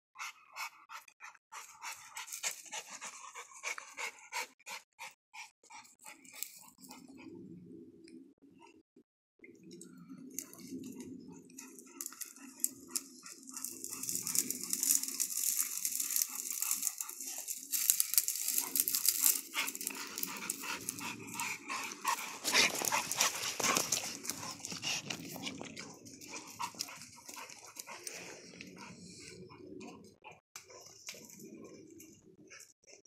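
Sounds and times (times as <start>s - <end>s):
dogs vocalizing: 10.4s - 33.0s
paws scuffling in dirt and brush: 11.6s - 29.0s.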